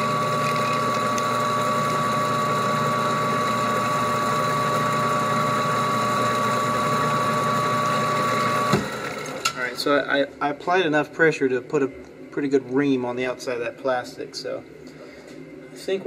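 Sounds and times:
machine mechanical hum: 0.0 - 16.0.

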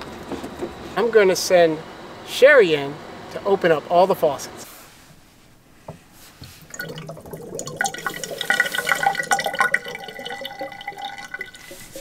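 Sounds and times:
water running into metal sink: 6.6 - 12.0.

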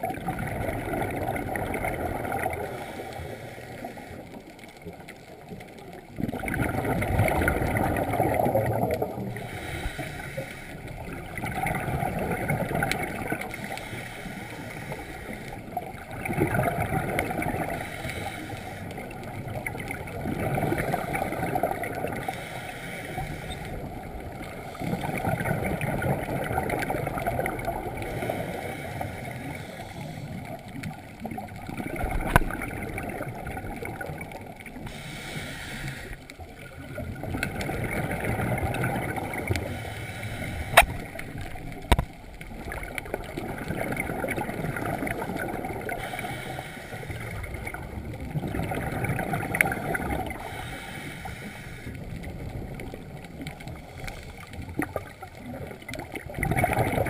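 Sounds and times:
bubbles gurgling underwater: 0.0 - 22.5, 23.2 - 35.1, 36.3 - 39.9, 40.5 - 46.4, 47.1 - 50.8, 52.0 - 57.0
scuba regulator breathing: 2.2 - 4.5, 7.5 - 11.2, 12.8 - 15.8, 17.1 - 19.3, 20.8 - 25.5, 27.0 - 31.3, 34.8 - 36.6, 39.1 - 42.0, 45.8 - 48.2, 50.1 - 52.8, 53.6 - 55.0.

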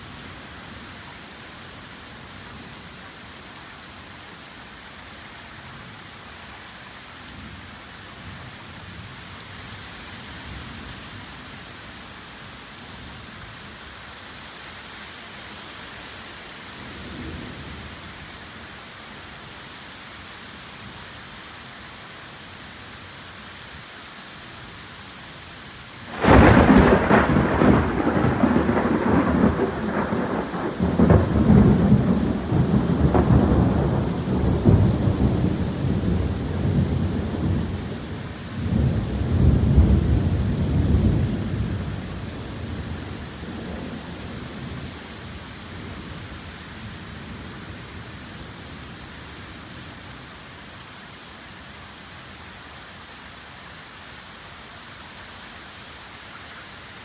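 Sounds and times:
torrential rain hissing: 0.0 - 57.0
thunder crack and rumbling: 26.1 - 38.0.

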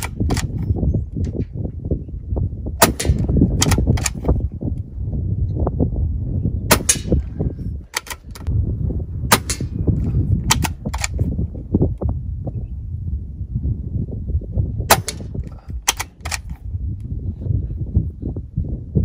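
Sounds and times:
low steady rumble: 0.0 - 19.0
air rifle shots: 2.8 - 4.4, 6.7 - 7.3, 7.9 - 8.5, 9.3 - 9.8, 10.5 - 11.3, 14.9 - 16.6.

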